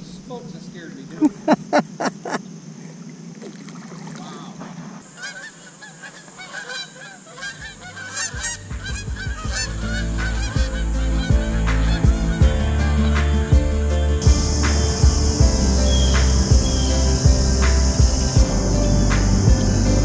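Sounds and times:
geese honking: 0:05.1 - 0:17.2
background music: 0:07.6 - 0:20.0.

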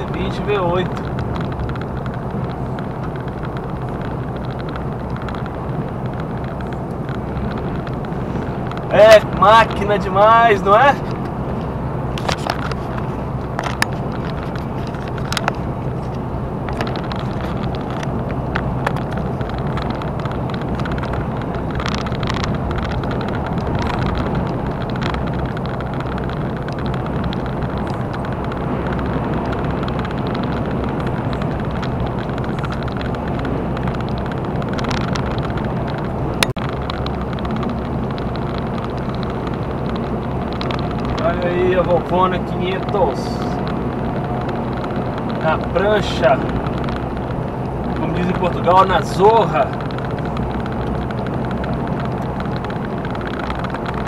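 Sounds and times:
engine and road noise in cab: 0:00.0 - 0:54.0.

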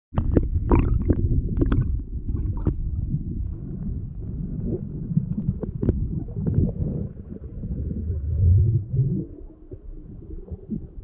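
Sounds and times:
underwater churning rumble: 0:00.1 - 0:11.0
bubble pops: 0:00.2 - 0:02.8.

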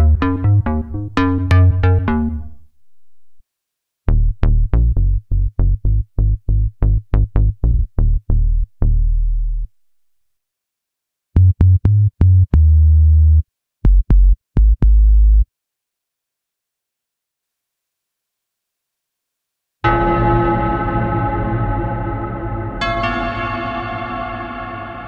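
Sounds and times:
synthesizer bass short notes: 0:00.0 - 0:02.6
deep sub bass notes: 0:04.1 - 0:09.7, 0:11.4 - 0:15.4.

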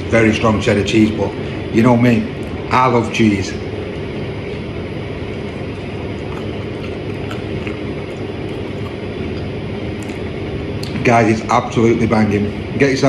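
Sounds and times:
steady mechanical hum: 0:00.0 - 0:13.0
mouth clicks from chewing: 0:05.7 - 0:11.0.

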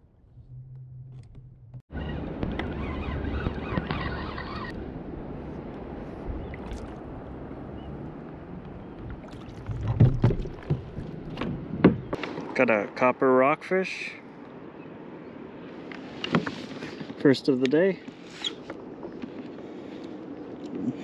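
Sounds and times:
water around kayak: 0:00.0 - 0:13.1, 0:14.4 - 0:21.0
wind on microphone: 0:02.1 - 0:12.2.

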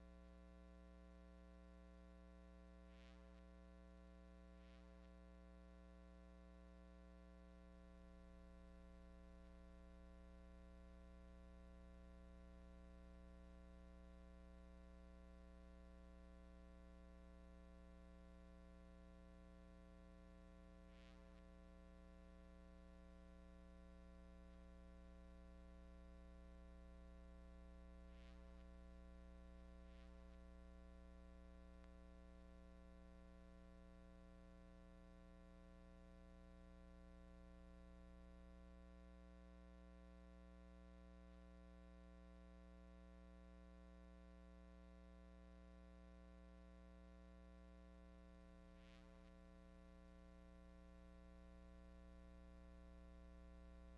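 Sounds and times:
faint electrical hum: 0:00.0 - 0:53.9
faint ticks: 0:31.8 - 0:32.0.

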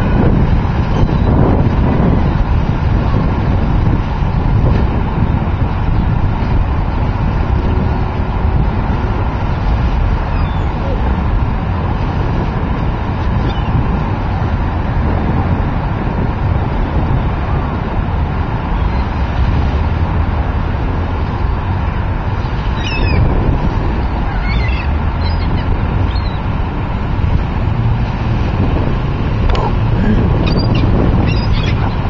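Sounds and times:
traffic: 0:00.0 - 0:32.0
wind on microphone: 0:00.0 - 0:32.0
water birds calling: 0:00.7 - 0:01.4, 0:08.9 - 0:12.5, 0:13.2 - 0:14.1, 0:18.4 - 0:20.6, 0:21.8 - 0:32.0.

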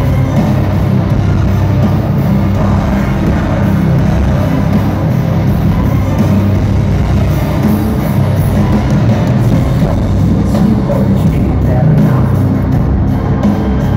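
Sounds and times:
metal band playing live: 0:00.0 - 0:13.9.

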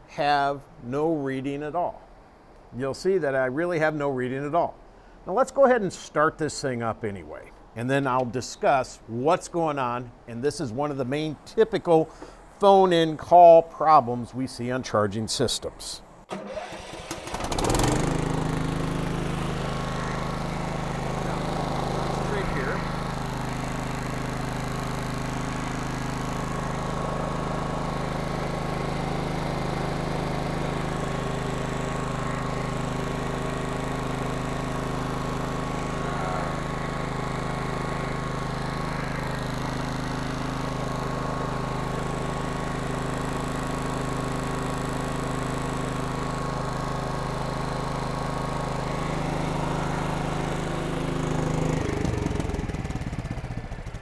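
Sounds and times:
engine running and shutting off: 0:16.3 - 0:54.0.

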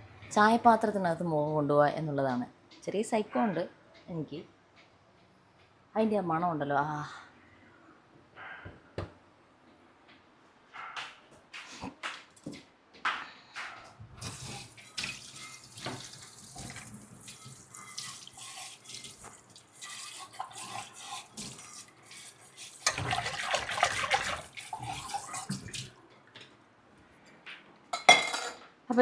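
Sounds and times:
tap water splashing into sink: 0:14.2 - 0:21.8, 0:22.8 - 0:25.9.

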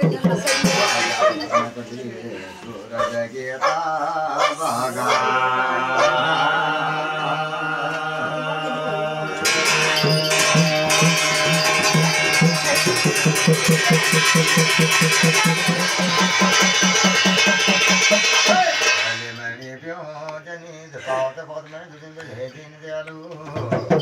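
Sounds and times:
hand drum: 0:00.0 - 0:01.5, 0:09.4 - 0:19.1, 0:23.5 - 0:24.0
brass plate beaten with stick: 0:00.0 - 0:01.7, 0:09.4 - 0:19.4
man singing: 0:00.0 - 0:13.8, 0:15.5 - 0:24.0.

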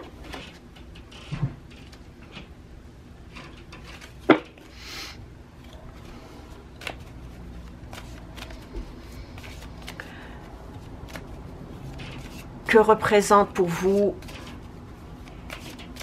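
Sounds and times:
cards shuffled: 0:06.7 - 0:12.6, 0:15.2 - 0:16.0.

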